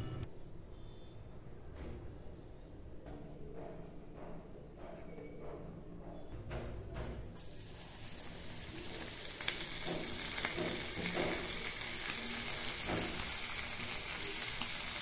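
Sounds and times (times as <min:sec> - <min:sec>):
fish sizzling in oil: 0:07.4 - 0:15.0.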